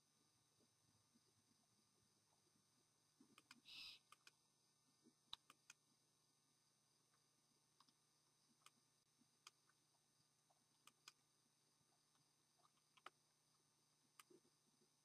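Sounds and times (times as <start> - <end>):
faint sharp clicks: 3.3 - 4.4, 5.3 - 5.8, 8.6 - 8.8, 10.4 - 11.2, 12.0 - 14.4
owl hissing screech: 3.7 - 4.0.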